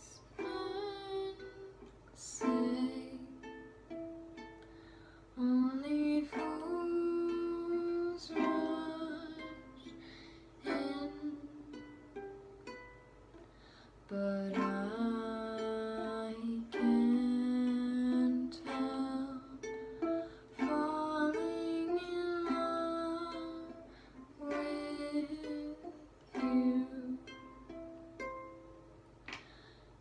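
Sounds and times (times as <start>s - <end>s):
girl singing: 0.0s - 4.5s, 5.3s - 13.0s, 14.0s - 28.5s
ukulele strumming chords: 0.0s - 29.7s.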